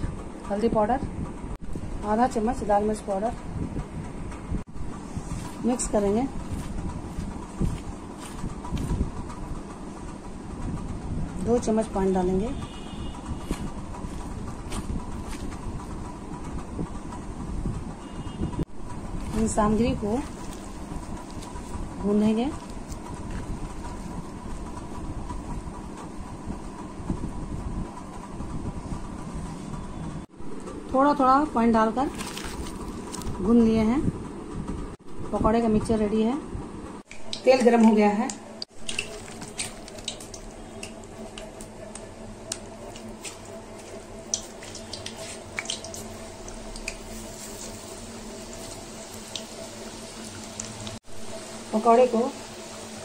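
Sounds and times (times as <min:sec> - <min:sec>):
hand squishing onions in batter: 0:19.2 - 0:21.9, 0:37.2 - 0:51.0
oil popping and crackling: 0:37.2 - 0:51.0
food deep-frying in hot oil: 0:37.3 - 0:53.0.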